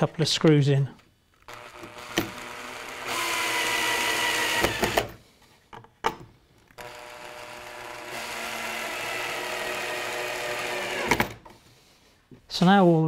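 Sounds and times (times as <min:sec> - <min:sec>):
cordless drill motor whining: 0:01.5 - 0:05.2, 0:06.8 - 0:11.5.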